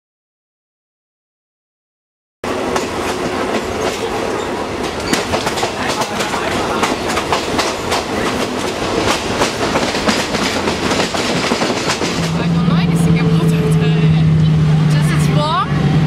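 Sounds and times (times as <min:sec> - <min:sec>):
train rumble inside carriage: 0:02.4 - 0:16.0
wheels clicking and clattering: 0:03.8 - 0:12.4.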